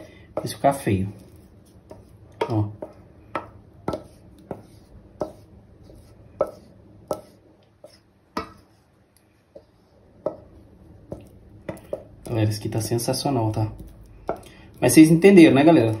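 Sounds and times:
spoon knocking on saucepan: 2.4 - 4.6.

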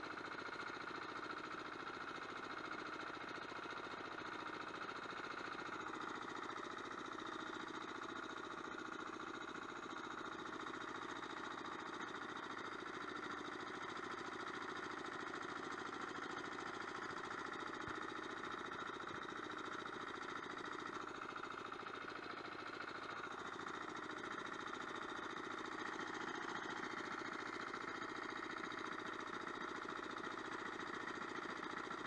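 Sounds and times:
tractor engine running: 0.0 - 32.0.

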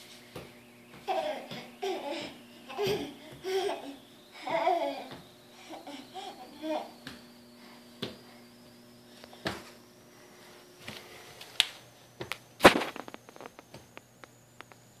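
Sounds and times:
hands slapping hardwood floor: 8.0 - 8.2.

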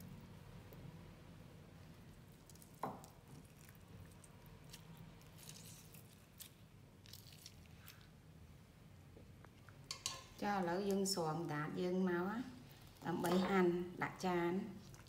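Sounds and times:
wet squishing of lime squeezed: 2.2 - 8.3.

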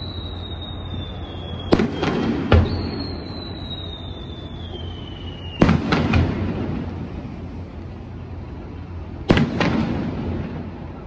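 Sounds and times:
whistle of rising firework shell: 0.0 - 6.6.

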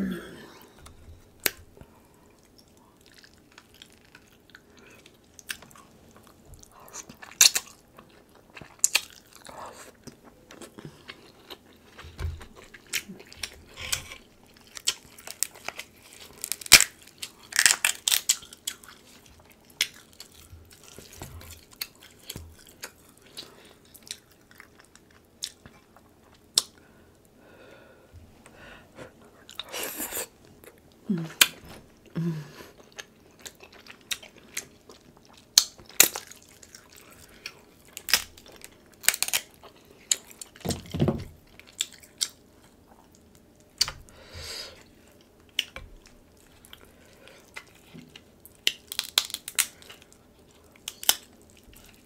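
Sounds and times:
crab shells cracking: 12.9 - 18.8, 37.4 - 42.4, 48.5 - 50.0, 50.8 - 51.5.

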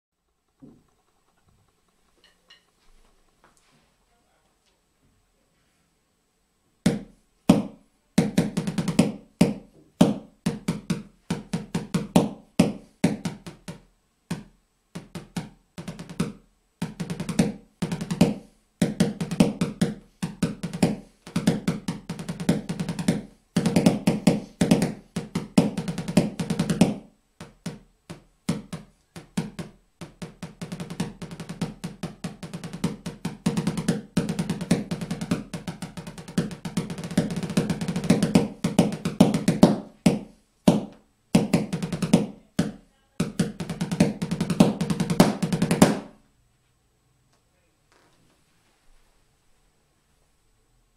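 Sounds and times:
snare drum played with sticks: 6.9 - 13.8, 15.0 - 27.8, 28.5 - 46.2.

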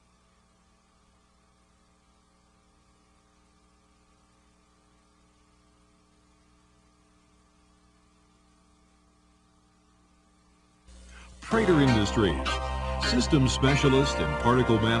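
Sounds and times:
light hiss: 0.0 - 12.9
faint electrical mains hum: 0.0 - 15.0.

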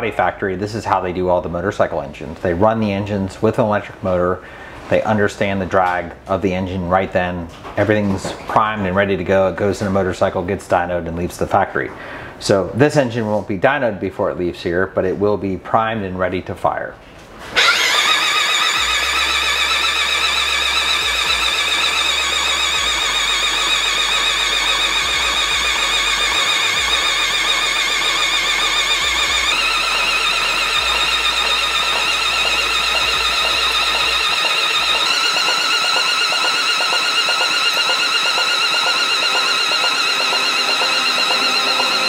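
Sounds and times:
electric drill whining: 17.5 - 42.0.

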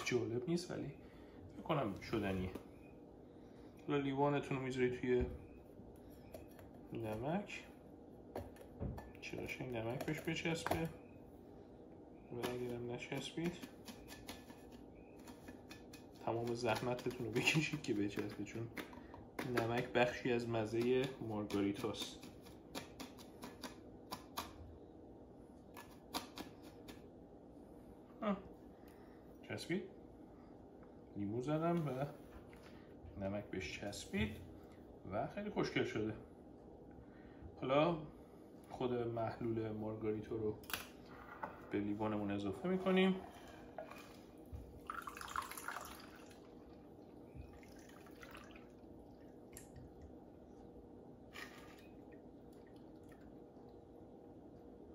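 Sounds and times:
drink pouring into a glass: 44.8 - 46.6, 47.5 - 49.9.

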